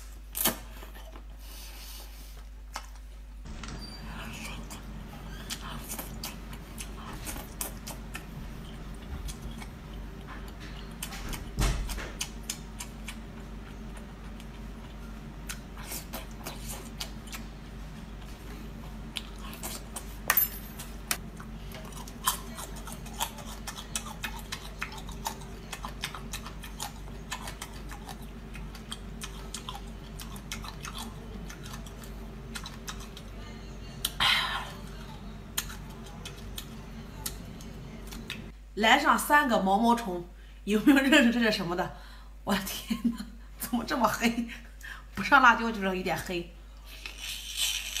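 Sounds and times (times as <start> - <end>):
steady low hum: 0.0 - 48.0
person chewing wetly: 4.5 - 20.2, 20.8 - 33.3.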